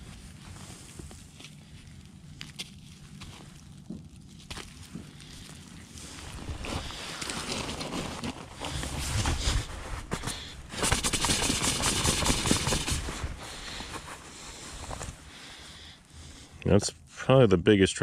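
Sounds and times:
gravel crunching underfoot: 0:00.0 - 0:10.9
jacket rustling against microphone: 0:00.0 - 0:15.8.

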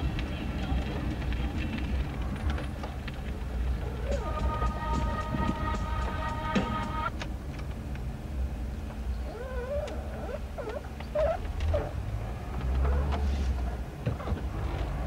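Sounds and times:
steady tone: 0:04.0 - 0:07.1
car engine and road rumble: 0:07.0 - 0:15.0.

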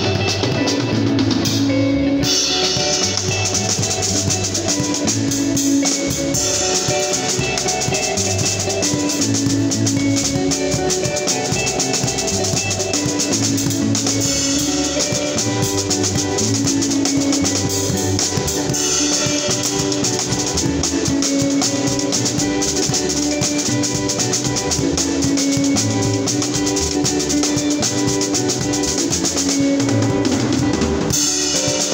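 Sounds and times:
backing music with bass and keyboard: 0:00.0 - 0:31.9
drum kit groove: 0:00.0 - 0:31.9.

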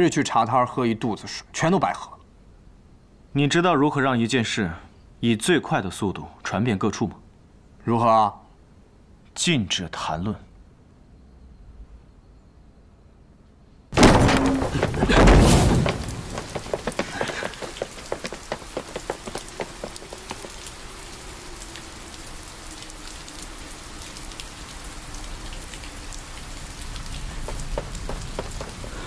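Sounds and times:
thunderclap rumbling: 0:14.0 - 0:20.7, 0:26.9 - 0:29.0
rain with drops ticking: 0:14.0 - 0:29.0.

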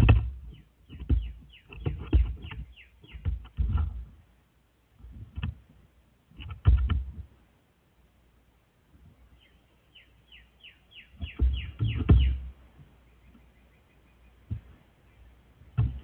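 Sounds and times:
crow thumping and scraping: 0:00.0 - 0:04.2, 0:05.0 - 0:07.4, 0:11.1 - 0:13.5, 0:14.4 - 0:15.0, 0:15.6 - 0:16.0.

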